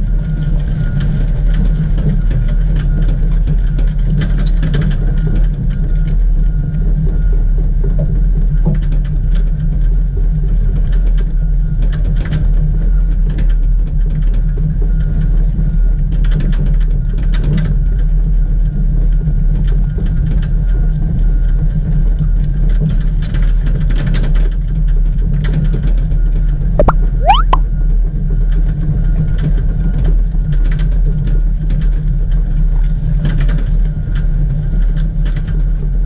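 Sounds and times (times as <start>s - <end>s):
short rising squeal: 26.8s - 27.6s.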